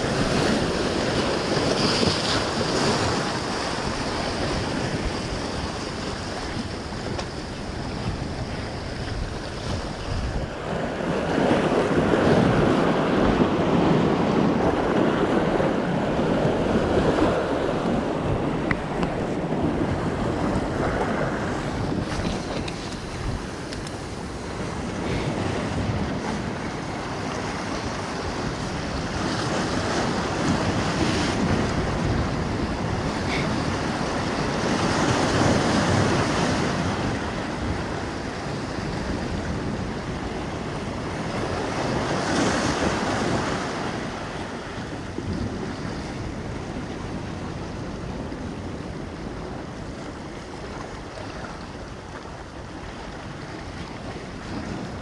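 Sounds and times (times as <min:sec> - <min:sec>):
ocean surf washing over rocks: 0:00.0 - 0:55.0
wind buffeting microphone: 0:00.0 - 0:55.0.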